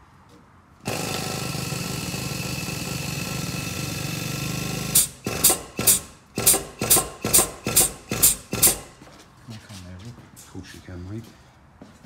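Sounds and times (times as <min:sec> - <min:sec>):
hammer blows on metal: 0:05.0 - 0:09.0.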